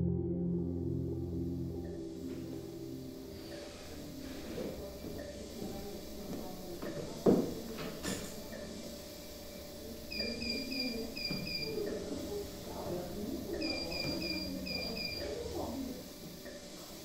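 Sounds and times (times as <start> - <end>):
faint wavering low sounds: 0.0 - 6.3
medical monitor alarm beeping: 1.9 - 6.2, 9.8 - 15.8.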